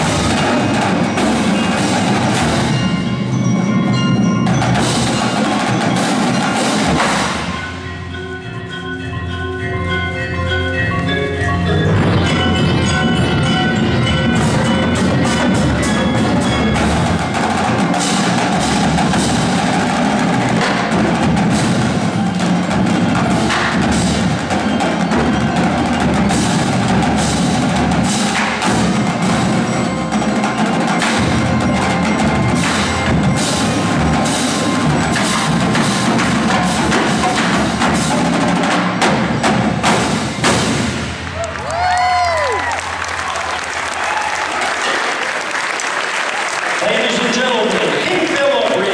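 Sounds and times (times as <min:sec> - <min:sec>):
snare drums: 0:00.0 - 0:03.4, 0:04.4 - 0:07.8, 0:14.3 - 0:42.7
ringing mallet keyboards: 0:00.0 - 0:38.7
tenor drums: 0:00.0 - 0:48.9.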